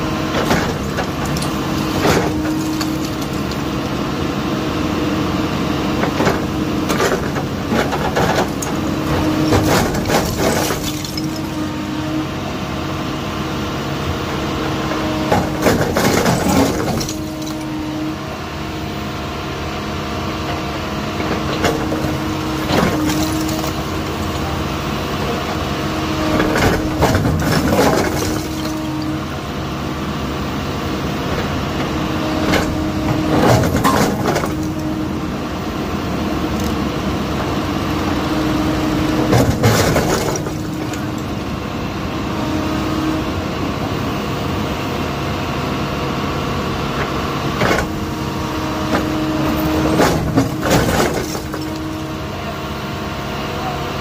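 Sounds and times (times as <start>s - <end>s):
excavator engine and hydraulics: 0.0s - 54.0s
bricks cracking and clattering: 0.3s - 3.7s, 6.3s - 11.6s, 15.3s - 17.7s, 21.6s - 24.4s, 26.3s - 29.2s, 32.6s - 35.0s, 39.2s - 41.4s, 49.0s - 52.0s.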